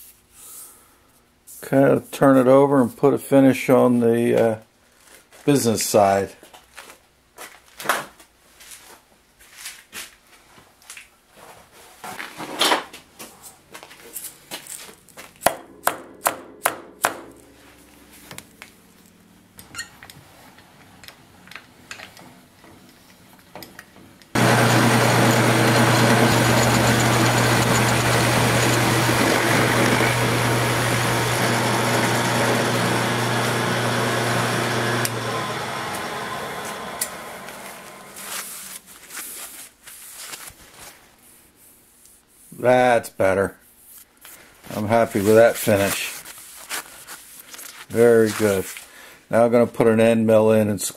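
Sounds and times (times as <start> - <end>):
milling machine cutting aluminum: 24.4 - 38.3
low motor hum: 24.4 - 38.4.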